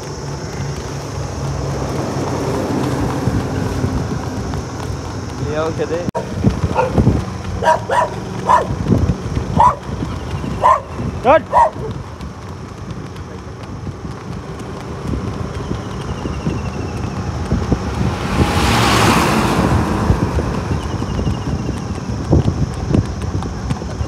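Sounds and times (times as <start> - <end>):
large truck passing: 0.0 - 24.0
road traffic noise: 0.0 - 24.0
wind on the microphone: 6.2 - 24.0.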